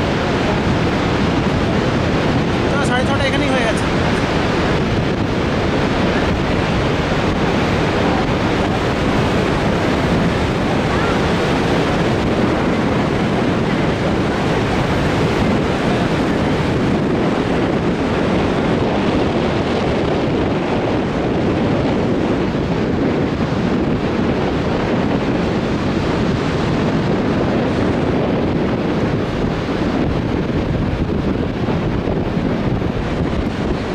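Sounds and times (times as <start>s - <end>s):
waterfall rushing: 0.0s - 21.3s
wind on microphone: 0.0s - 33.9s.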